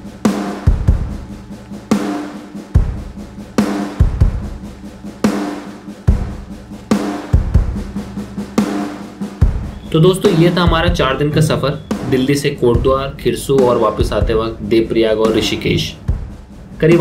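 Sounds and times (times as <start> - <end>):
drum beat music with bass: 0.0 - 17.0.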